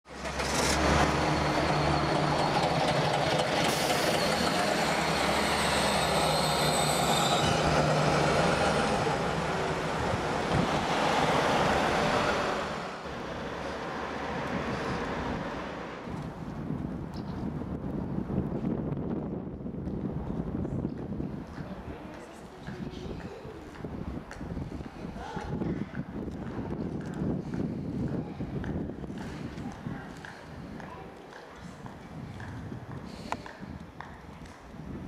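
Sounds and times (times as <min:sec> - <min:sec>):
diesel bus engine: 0:00.0 - 0:21.9.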